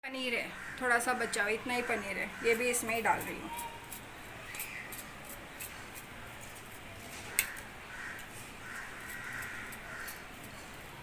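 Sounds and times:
cheese grating strokes: 2.5 - 11.0.

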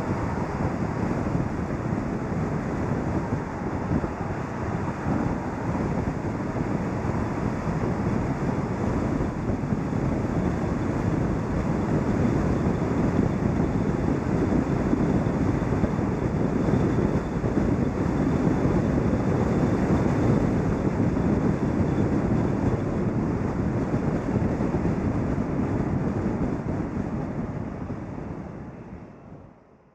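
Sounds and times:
car road noise: 0.0 - 20.8
wind noise: 0.0 - 29.8.

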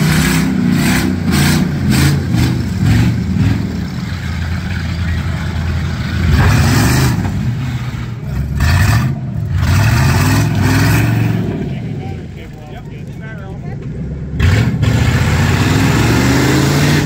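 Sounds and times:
car engines revving: 0.0 - 17.0.

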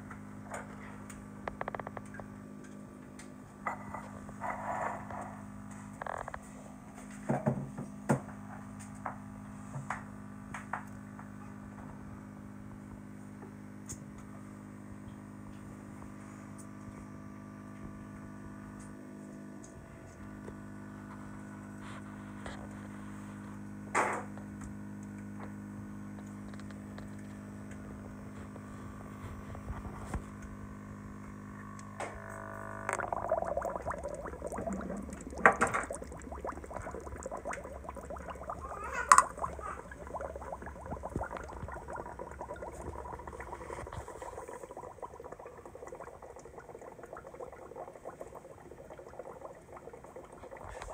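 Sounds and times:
small motor humming: 31.5 - 33.2.

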